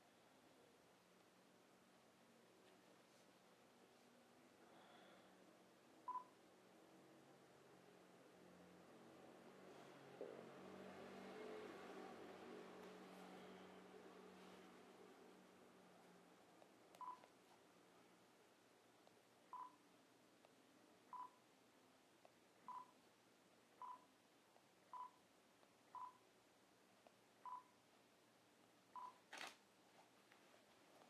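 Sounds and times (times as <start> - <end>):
camera shutter click: 29.3 - 29.6.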